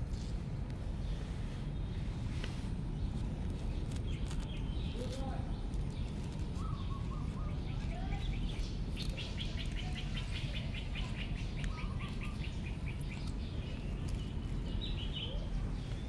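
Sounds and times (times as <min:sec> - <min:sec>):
steady low rumble: 0:00.0 - 0:16.0
songbird trilling: 0:05.9 - 0:16.0.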